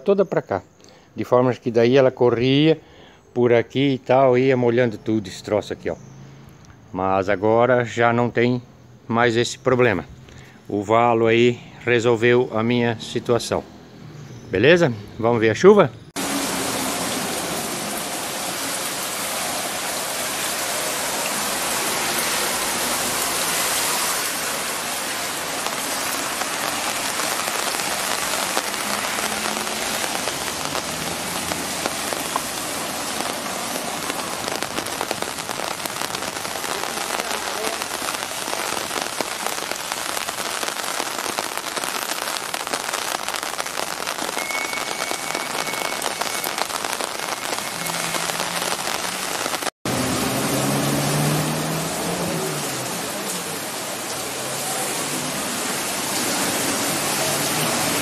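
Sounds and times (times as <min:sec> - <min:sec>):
heavy rain splashing into water: 0:16.1 - 0:58.0.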